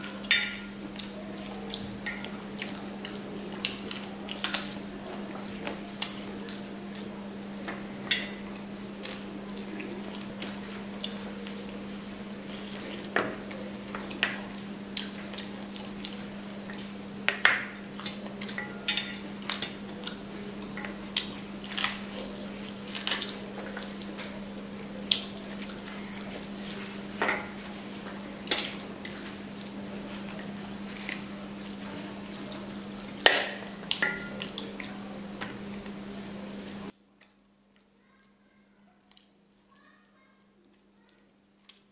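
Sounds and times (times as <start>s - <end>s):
person chewing and lip-smacking: 9.0s - 11.8s, 14.5s - 16.9s, 21.1s - 26.9s.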